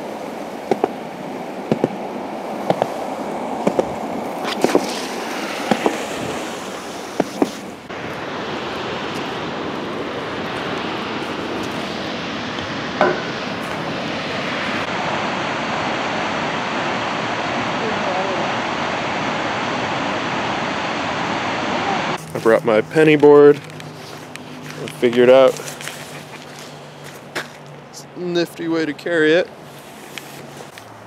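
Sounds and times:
skateboard wheels rolling on concrete: 0.0s - 15.1s, 21.8s - 31.0s.

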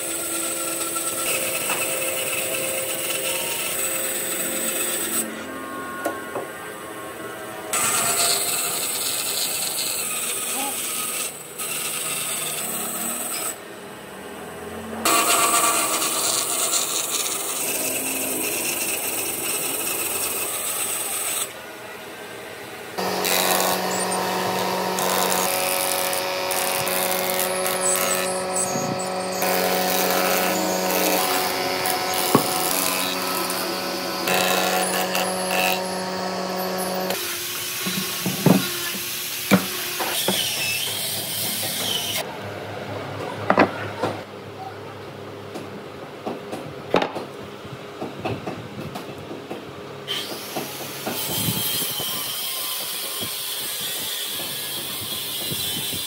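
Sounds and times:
band saw cutting wood: 0.0s - 21.8s, 22.9s - 42.3s, 50.1s - 56.0s
planing machine humming: 0.0s - 40.1s.

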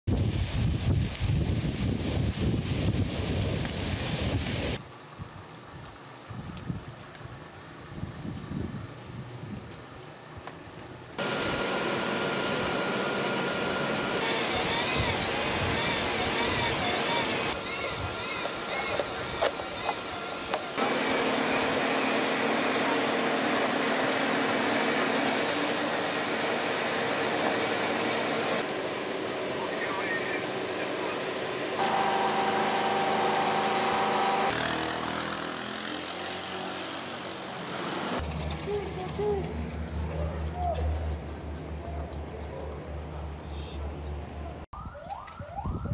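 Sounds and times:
wind buffeting microphone: 0.1s - 5.4s, 6.2s - 9.9s, 44.8s - 45.9s
outdoor noise: 0.1s - 45.9s
motor whining: 31.8s - 34.8s
water pump droning: 31.8s - 35.1s.

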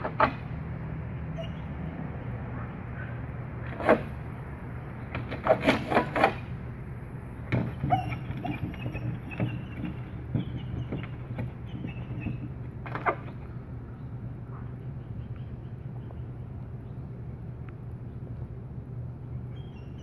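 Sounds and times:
sharp clicks and knocks: 0.0s - 0.6s, 4.9s - 6.6s, 7.4s - 13.6s
steady low hum: 0.0s - 20.0s.

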